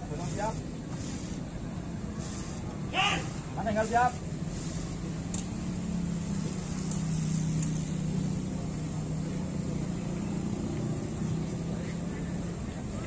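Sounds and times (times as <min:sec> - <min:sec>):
scooter engine humming: 0:00.2 - 0:13.0
faint sharp ticks: 0:06.8 - 0:07.8.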